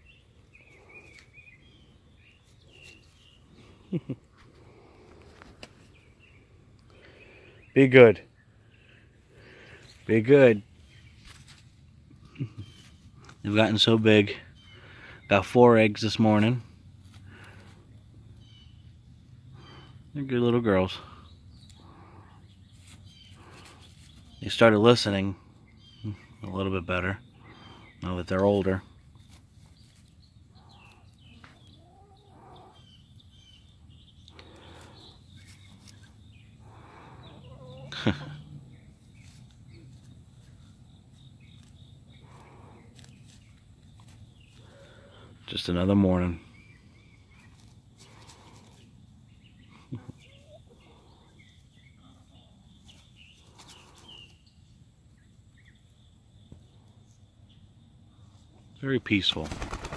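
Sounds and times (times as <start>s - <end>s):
hens clucking softly: 31.3s - 32.8s, 36.8s - 38.6s, 49.9s - 51.4s.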